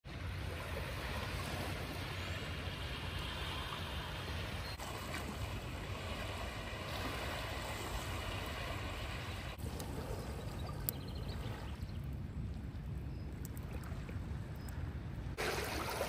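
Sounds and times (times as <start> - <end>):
wind rumble on microphone: 0.0 - 15.9
waves lapping on pebbles: 0.1 - 11.8, 15.4 - 16.0.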